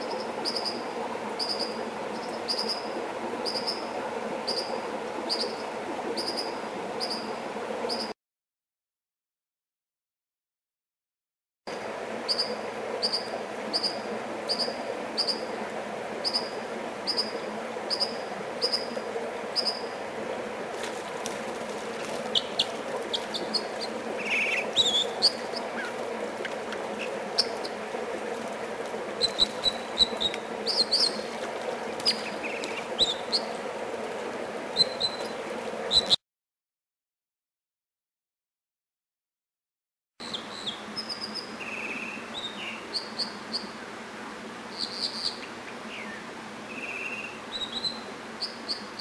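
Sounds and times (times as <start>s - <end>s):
stream water rushing: 0.0s - 8.0s, 11.7s - 36.2s, 40.8s - 44.8s, 45.4s - 49.0s
bird singing: 22.3s - 26.0s.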